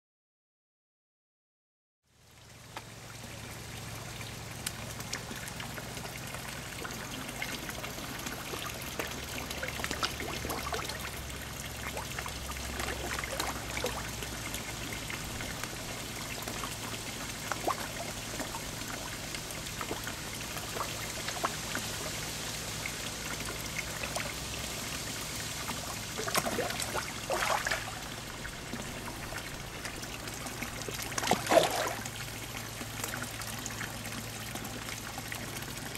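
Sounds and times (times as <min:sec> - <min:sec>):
water trickling and splashing: 0:02.2 - 0:35.9
louder splashes: 0:26.2 - 0:28.3, 0:31.0 - 0:32.2.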